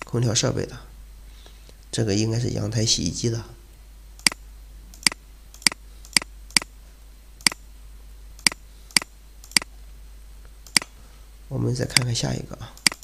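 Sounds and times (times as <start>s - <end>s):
faint low hum: 0.0s - 13.0s
computer mouse clicking: 12.8s - 13.0s.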